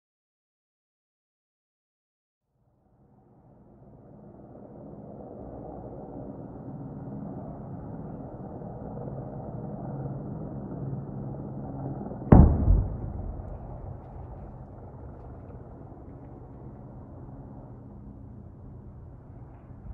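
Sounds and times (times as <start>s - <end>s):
explosive boom with rumble: 12.3s - 15.7s
steady low hum: 12.3s - 19.9s.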